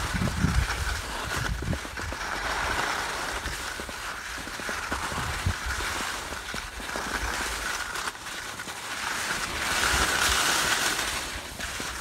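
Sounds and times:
wind on microphone: 0:00.0 - 0:02.2, 0:05.0 - 0:05.9
skis scraping on snow: 0:00.0 - 0:12.0.

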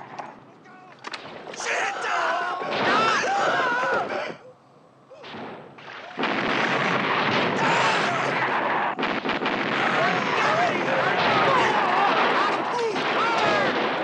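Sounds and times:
rifle shot: 0:01.0 - 0:01.6, 0:02.7 - 0:03.3, 0:05.2 - 0:14.0
bullets striking water: 0:01.0 - 0:01.7
men yelling: 0:01.6 - 0:04.5, 0:09.9 - 0:13.8.

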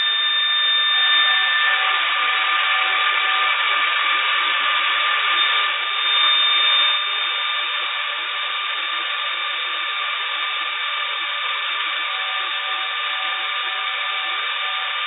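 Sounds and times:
machining whine: 0:00.0 - 0:15.0.

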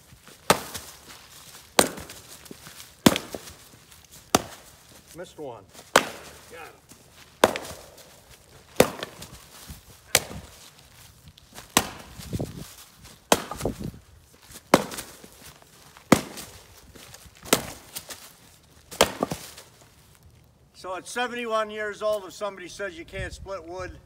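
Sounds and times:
axe chopping wood: 0:00.2 - 0:04.8, 0:05.8 - 0:10.7, 0:11.6 - 0:12.5, 0:13.2 - 0:18.2, 0:18.9 - 0:19.7.

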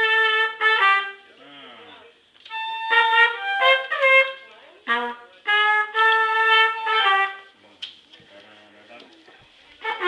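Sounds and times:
trumpet playing: 0:00.0 - 0:01.4, 0:02.5 - 0:07.6, 0:09.8 - 0:10.0.

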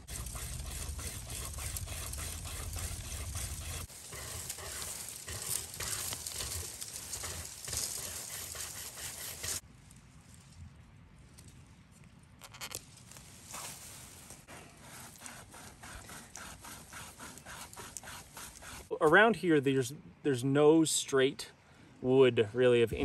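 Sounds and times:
wire saw rasping through wood: 0:00.0 - 0:09.6, 0:14.8 - 0:18.9.

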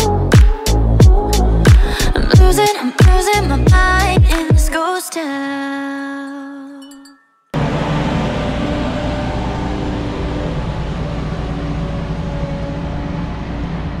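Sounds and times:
diesel farm machinery running: 0:07.6 - 0:14.0.

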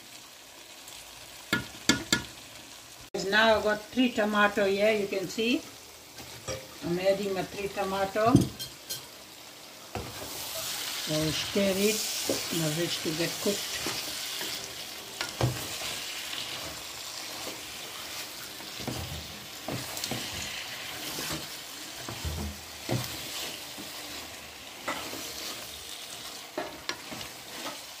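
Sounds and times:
vegetables sizzling in a pot: 0:00.0 - 0:28.0
wooden spoon scraping a pot: 0:12.0 - 0:28.0.

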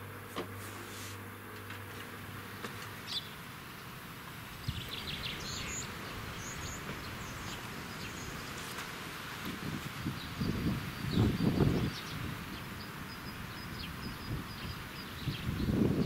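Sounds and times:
small birds chirping: 0:02.5 - 0:08.9, 0:09.6 - 0:16.0.

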